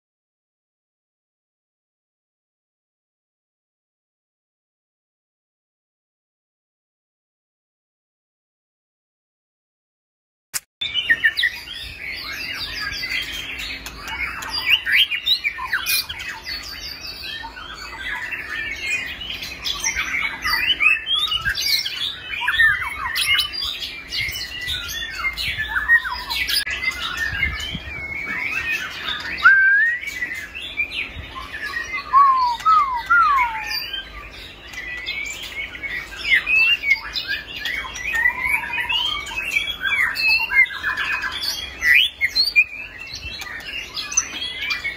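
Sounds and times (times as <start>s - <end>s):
bird singing varied whistled song: 10.8s - 44.9s.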